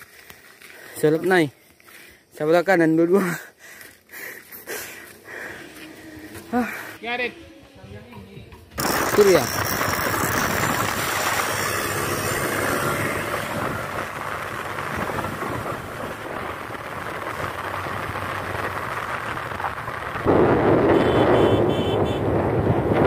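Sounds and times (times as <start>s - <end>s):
wind buffeting microphone: 7.8s - 23.0s
motorcycle engine: 8.7s - 23.0s.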